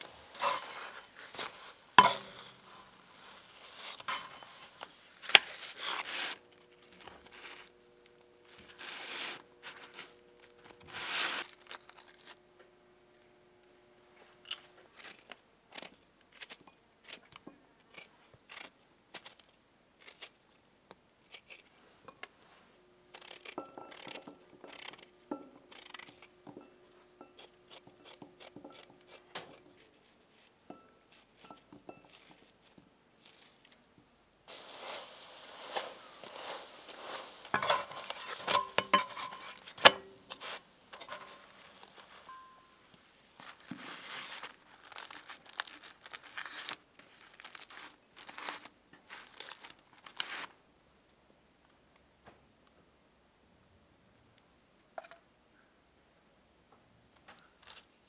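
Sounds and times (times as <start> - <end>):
flatbread crunching by hand: 0.2 - 7.7, 8.4 - 12.4, 23.1 - 26.4, 34.5 - 42.5, 43.4 - 50.6.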